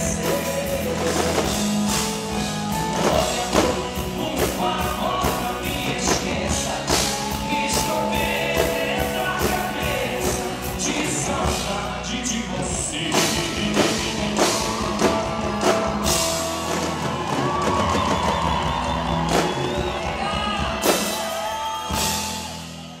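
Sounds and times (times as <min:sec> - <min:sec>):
duo singing: 0:00.0 - 0:17.6
live band music: 0:00.0 - 0:23.0.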